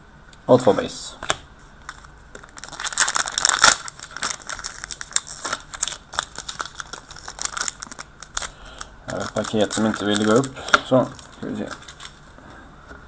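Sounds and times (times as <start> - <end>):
plastic wrapper crinkling: 1.8 - 12.3.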